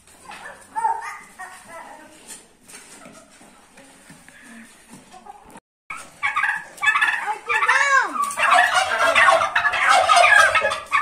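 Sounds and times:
turkeys gobbling: 5.9 - 11.0.

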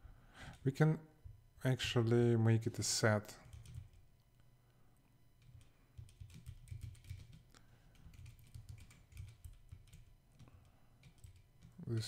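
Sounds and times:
faint keyboard typing: 3.2 - 4.5, 5.4 - 12.0.

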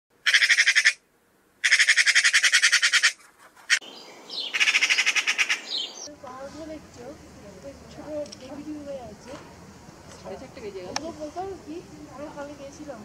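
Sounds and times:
magpie chattering: 0.2 - 1.0, 1.6 - 3.8, 4.4 - 6.2.

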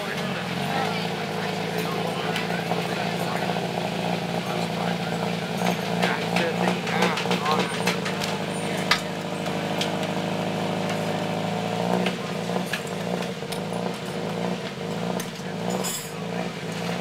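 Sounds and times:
engine running steadily: 0.0 - 17.0
hand tools clicking and knocking: 5.6 - 10.0.

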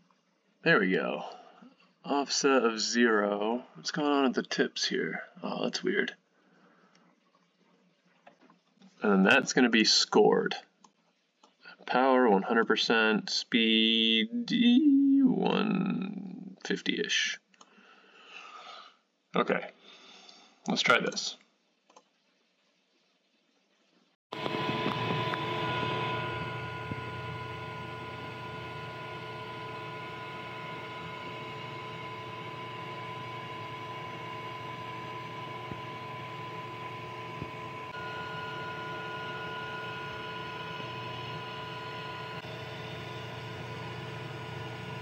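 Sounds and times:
higher whine: 24.4 - 45.0
laser cutter whirring: 24.4 - 45.0.

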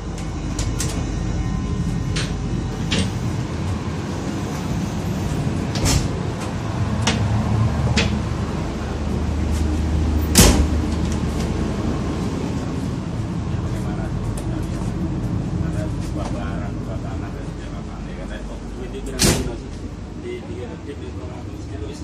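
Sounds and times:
low train rumble: 0.0 - 22.0.

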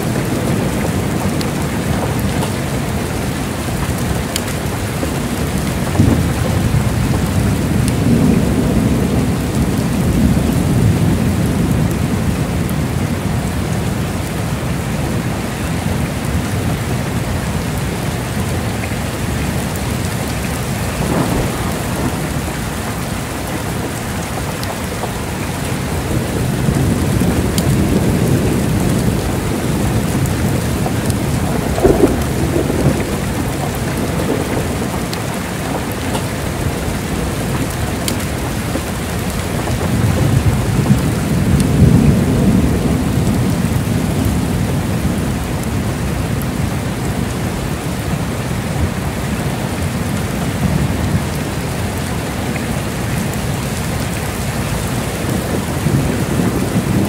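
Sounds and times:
heavy rain falling: 0.0 - 57.0
thunder rumbling: 0.0 - 57.0
sharp thunder claps: 5.6 - 12.3, 20.5 - 24.7, 26.0 - 44.5.

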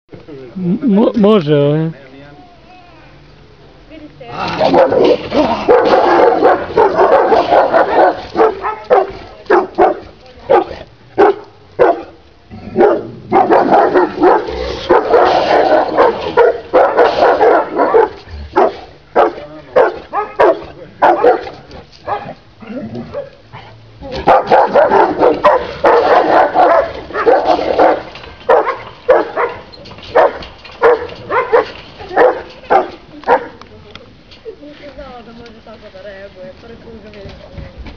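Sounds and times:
dogs barking aggressively: 4.3 - 33.6.

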